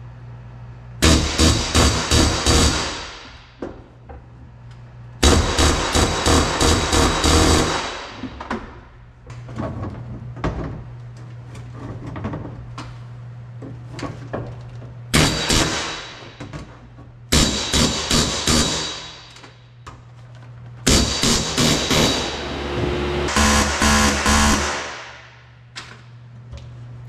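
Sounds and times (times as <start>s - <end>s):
steady low hum: 0.0s - 27.0s
rivet gun hammering: 1.0s - 3.6s, 5.2s - 8.5s, 15.2s - 16.4s, 17.3s - 19.5s, 20.9s - 22.4s, 23.3s - 25.4s.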